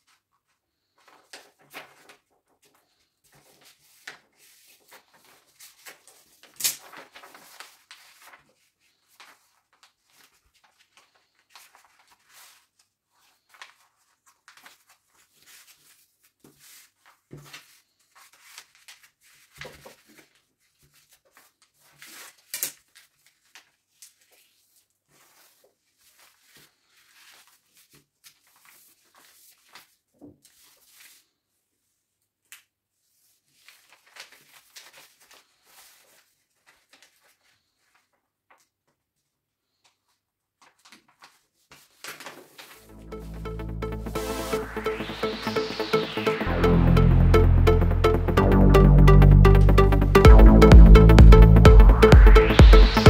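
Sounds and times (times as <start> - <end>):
stiff paper rustling and crinkling: 0.0 - 32.0, 33.0 - 42.8
sharp paper crackles: 0.8 - 31.4, 33.0 - 38.8, 39.7 - 42.8
hands sliding over paper: 3.3 - 20.2.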